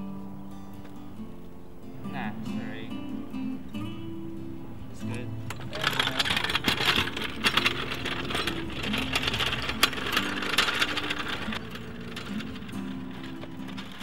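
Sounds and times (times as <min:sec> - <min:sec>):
soft guitar music: 0:00.0 - 0:14.0
fast rattling clatter: 0:05.5 - 0:14.0.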